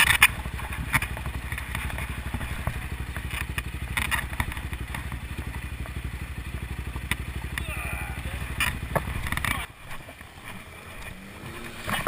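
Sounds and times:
clicks and clatter: 0.0 - 5.2, 8.5 - 12.0
motorcycle engine idling: 0.0 - 12.0.

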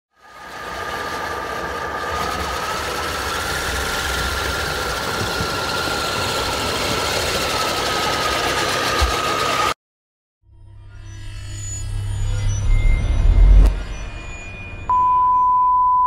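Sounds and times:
electric motors whining: 0.2 - 9.8.

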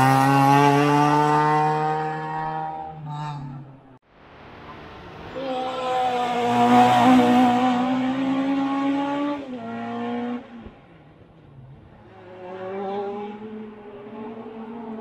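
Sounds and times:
race car engine accelerating: 0.0 - 3.5, 5.6 - 10.8.

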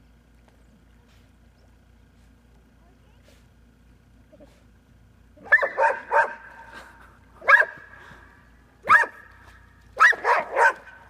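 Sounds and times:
dog barking: 5.4 - 6.5, 7.4 - 7.8, 8.8 - 9.2, 10.0 - 11.0.

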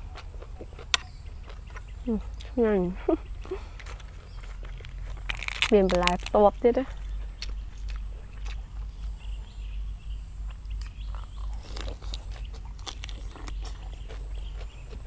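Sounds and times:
person chewing and lip-smacking: 0.0 - 2.6, 7.0 - 8.9, 10.5 - 15.0
steady low rumble: 0.0 - 15.0.

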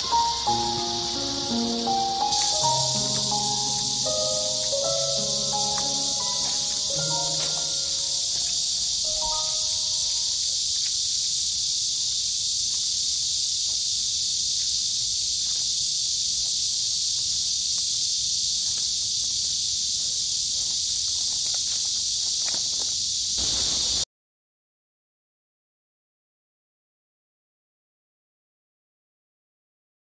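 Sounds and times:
cicadas droning: 0.0 - 24.0.

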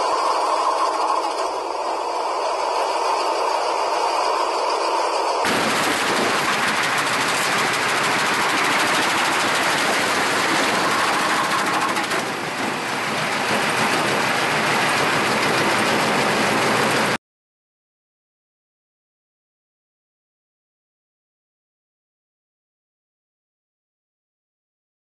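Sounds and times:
snowblower grinding through metal: 0.0 - 17.2.

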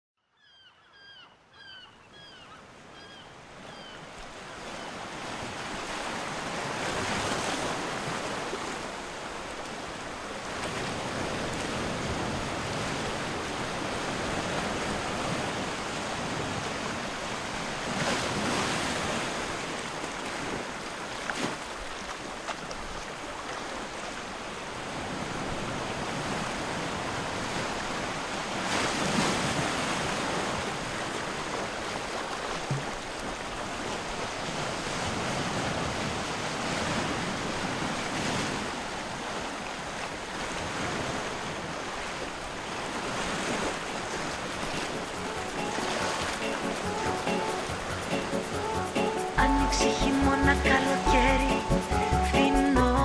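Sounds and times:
sea surf washing onto beach: 5.0 - 52.8.

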